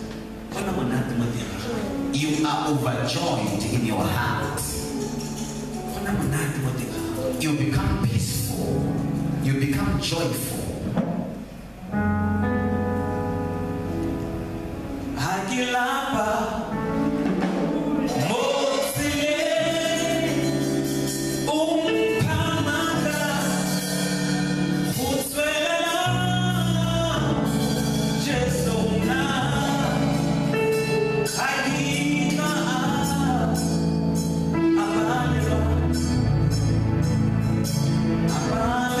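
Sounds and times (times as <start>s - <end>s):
sustained keyboard chords: 0.0s - 39.0s
man singing gospel song: 15.2s - 16.9s, 18.0s - 36.5s, 38.3s - 39.0s.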